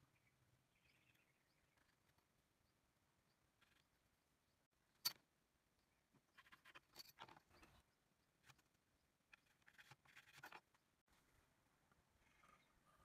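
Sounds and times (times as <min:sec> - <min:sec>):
pencil scratching on wood: 0:09.3 - 0:10.6.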